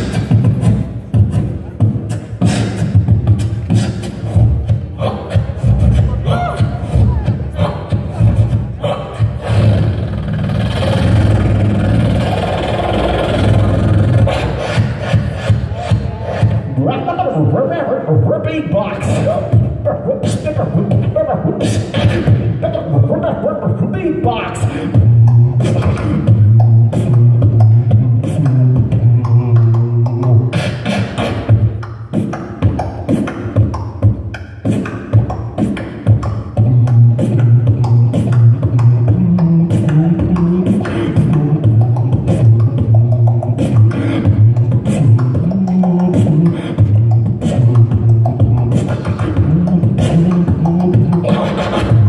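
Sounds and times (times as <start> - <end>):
beatboxing mouth percussion: 0.0 - 52.0
hummed bass line: 5.4 - 16.9, 24.2 - 30.6, 36.1 - 52.0.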